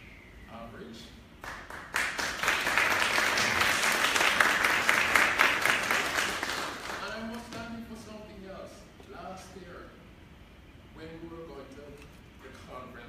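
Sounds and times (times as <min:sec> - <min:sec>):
audience applauding: 0:01.4 - 0:07.4.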